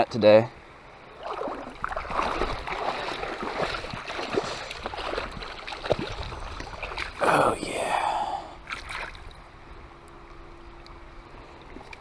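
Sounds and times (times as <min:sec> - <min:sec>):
water sloshing and splashing: 0:01.1 - 0:07.4, 0:08.6 - 0:09.4, 0:11.4 - 0:12.0.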